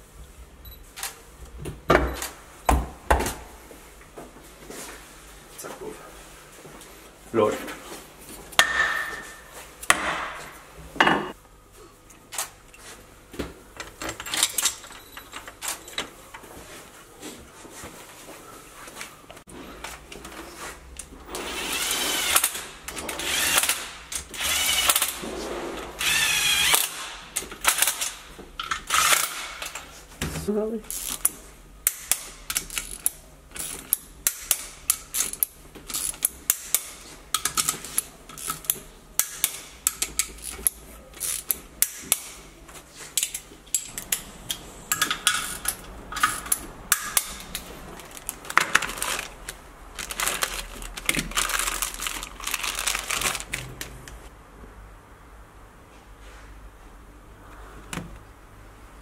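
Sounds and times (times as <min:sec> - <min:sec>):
hand ratchet clicking: 0:30.9 - 0:42.3.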